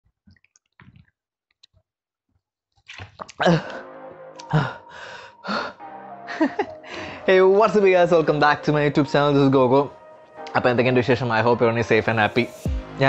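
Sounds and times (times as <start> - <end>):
intro music with heavy beat: 12.6 - 13.0.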